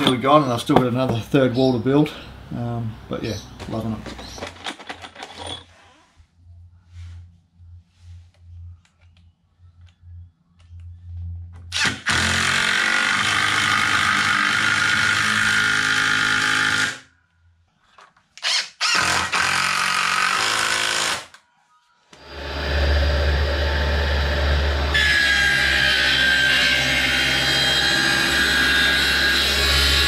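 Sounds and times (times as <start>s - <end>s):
cordless drill drilling into timber: 11.7s - 17.0s, 18.4s - 21.3s
circular saw running: 11.8s - 17.0s, 22.2s - 30.0s.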